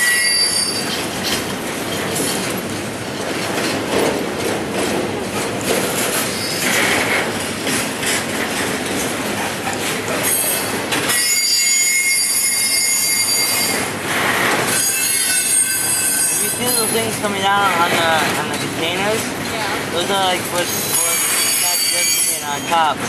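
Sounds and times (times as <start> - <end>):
steel wheels squealing: 0.0 - 2.5, 6.1 - 7.2, 10.2 - 17.2, 20.6 - 22.9
freight train rolling past: 0.0 - 23.0.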